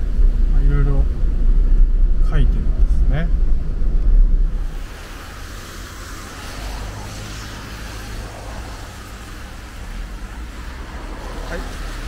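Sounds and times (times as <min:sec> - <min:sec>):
cars going by: 0:02.5 - 0:12.0.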